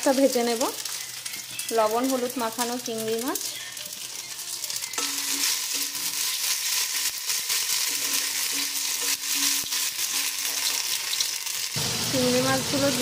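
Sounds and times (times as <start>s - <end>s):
onions sizzling in oil: 0.0s - 13.0s
spatula stirring: 3.4s - 11.7s.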